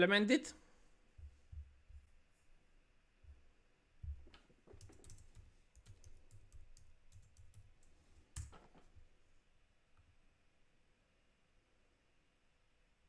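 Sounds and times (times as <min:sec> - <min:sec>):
typing on keyboard: 0:04.1 - 0:08.8.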